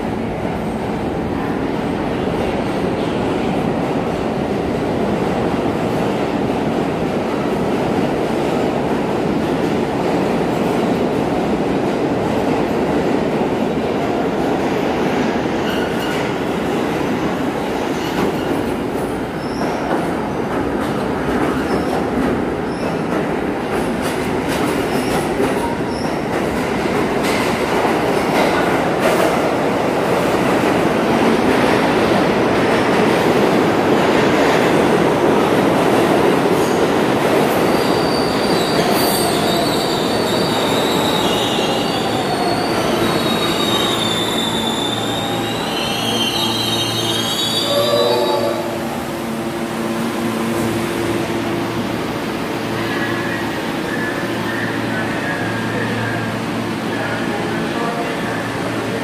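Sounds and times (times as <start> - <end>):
subway train rumbling and clattering: 0.0 - 59.0
train brakes squealing: 37.7 - 48.7.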